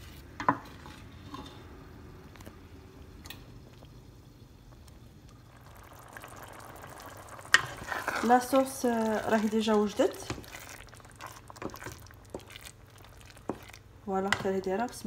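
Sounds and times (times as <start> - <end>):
wet stirring of sauce: 5.6 - 14.5.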